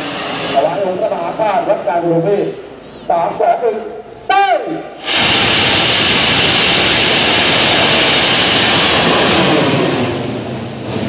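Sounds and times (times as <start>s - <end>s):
rocket launching hiss: 5.0s - 11.0s.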